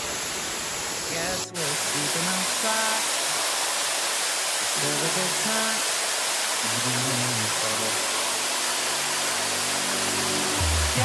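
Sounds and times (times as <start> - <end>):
waterfall rushing: 0.0 - 11.0
low sustained background music: 6.7 - 11.0.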